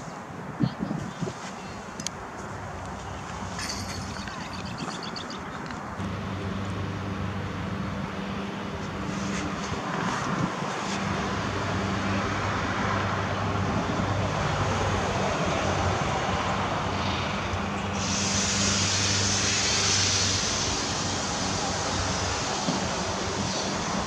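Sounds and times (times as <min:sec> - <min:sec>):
road traffic engine hum: 0:00.0 - 0:24.0
high hiss: 0:17.8 - 0:24.0.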